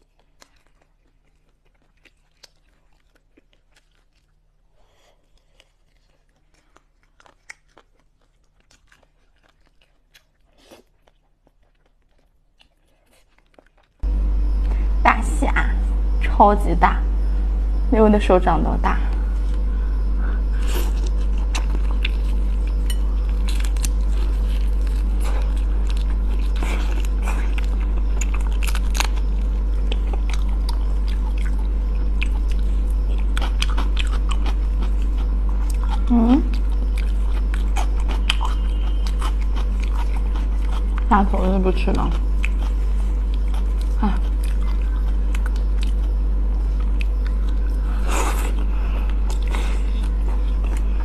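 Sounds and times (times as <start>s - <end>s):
person chewing crunchy food: 0.0s - 15.0s, 18.9s - 51.0s
steady low hum: 14.0s - 51.0s.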